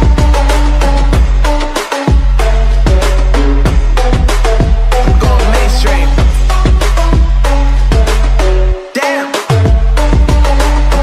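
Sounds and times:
high synth sweep: 0.0s - 8.6s
heavy sustained bass: 0.0s - 8.8s
drum hits: 4.7s - 7.3s.

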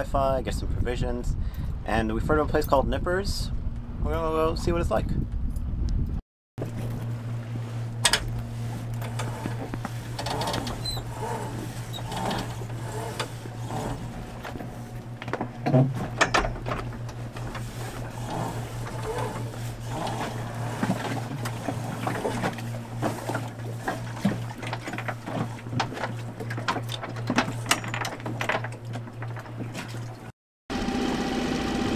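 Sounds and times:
small outboard motor running: 6.6s - 31.9s.

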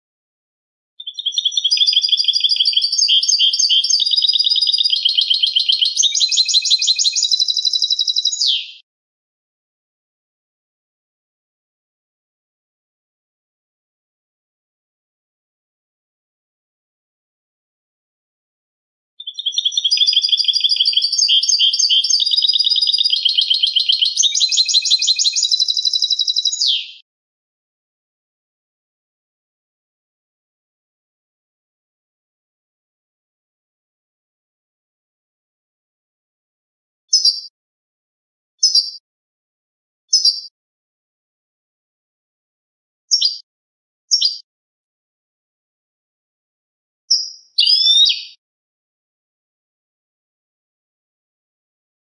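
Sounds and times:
goldfinch twittering song: 1.0s - 8.8s, 19.2s - 27.0s, 37.1s - 37.5s, 38.6s - 39.0s, 40.1s - 40.5s, 43.1s - 43.4s, 44.1s - 44.4s, 47.1s - 48.4s.

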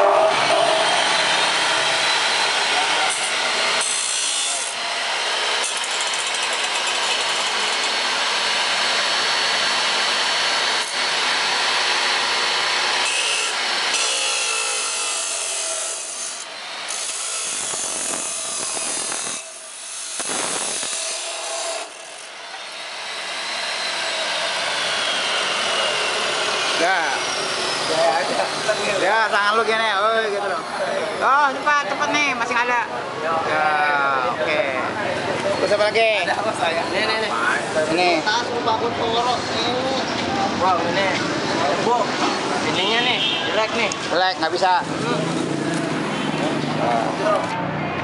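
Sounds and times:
cut-off saw grinding metal: 0.0s - 31.2s.

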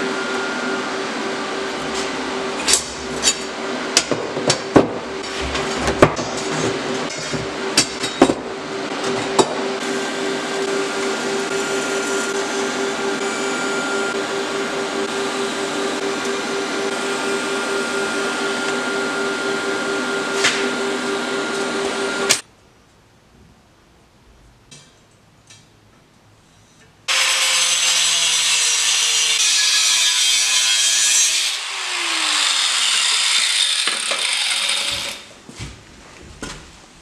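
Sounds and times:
welding arc hiss and hum: 1.5s - 22.5s.

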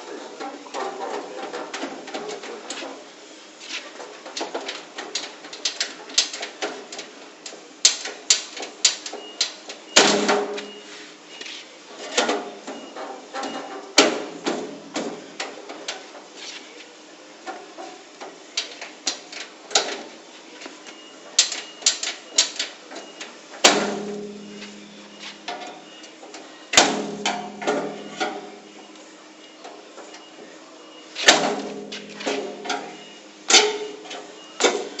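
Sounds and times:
heavy ringing metal strikes: 23.7s - 25.5s
metal clanks and knocks: 26.8s - 28.6s, 31.2s - 35.0s.

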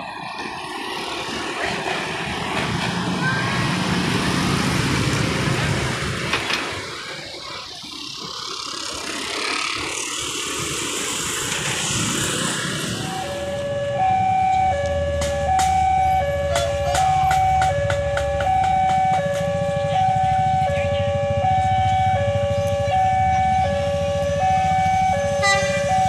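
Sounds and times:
motor scooters and traffic passing: 0.0s - 26.0s
two-tone crossing warning alarm: 12.8s - 26.0s.

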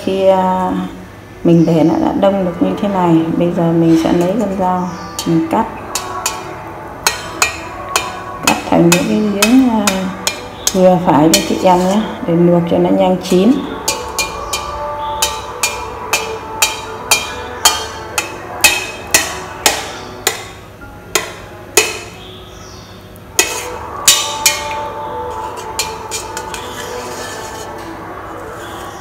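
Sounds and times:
knife clinking on steel bowl: 7.1s - 12.0s, 13.8s - 20.6s, 23.4s - 27.9s.

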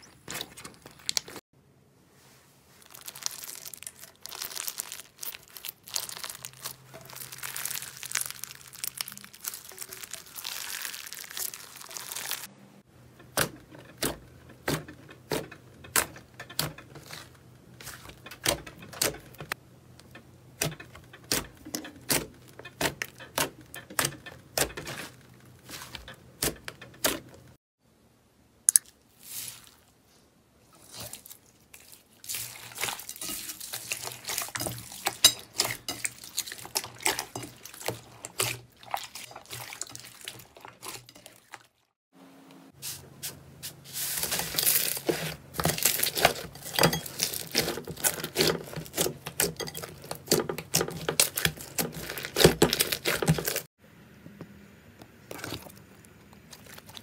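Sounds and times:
foil confetti slime crinkling: 2.7s - 12.5s, 29.2s - 29.9s, 30.8s - 41.4s, 43.7s - 53.7s.

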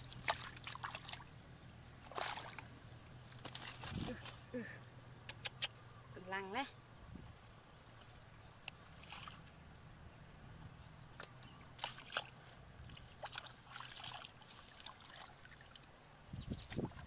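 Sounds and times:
hands splashing in muddy water: 0.0s - 1.3s, 2.0s - 2.7s, 11.8s - 15.8s.

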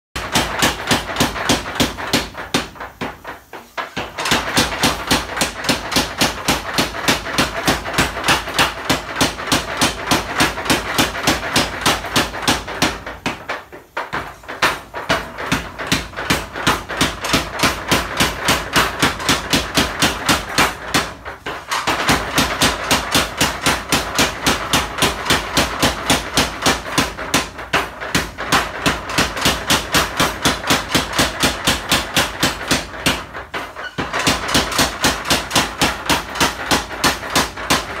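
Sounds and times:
power hammer striking steel: 0.2s - 3.2s, 3.9s - 38.0s.

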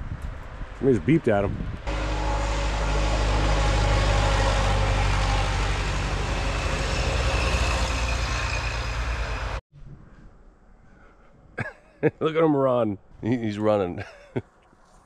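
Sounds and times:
vehicle engine running: 1.9s - 9.6s.

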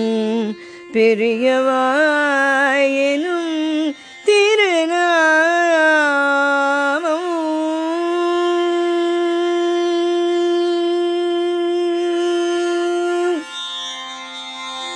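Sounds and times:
person singing devotional song: 0.0s - 13.7s.

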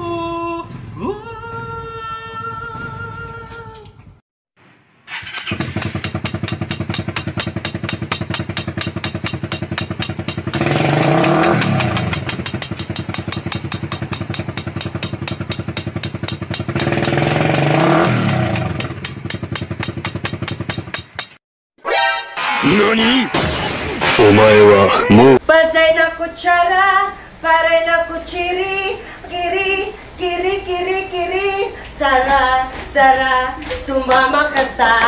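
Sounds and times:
small motorcycle engine puttering: 5.1s - 20.8s.

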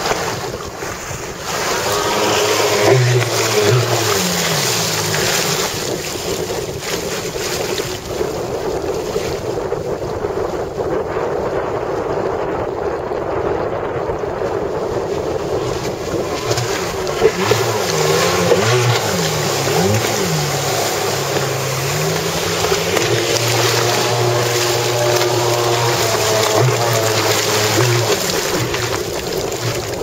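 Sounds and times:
jet ski engine revving: 0.0s - 8.8s, 14.8s - 30.0s
rush of water spray: 0.0s - 9.6s, 15.1s - 30.0s
wind: 0.0s - 30.0s.

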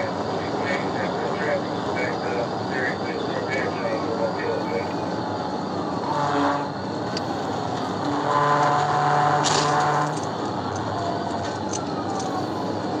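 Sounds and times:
steady pitched hum: 0.0s - 10.7s
road noise inside car: 0.0s - 13.0s
car engine running: 6.8s - 12.2s.

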